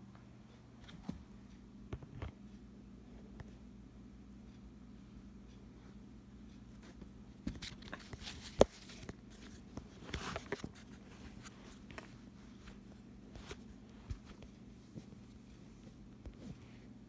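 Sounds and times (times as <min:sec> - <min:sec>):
phone handling clicks and rustles: 0:07.4 - 0:12.2.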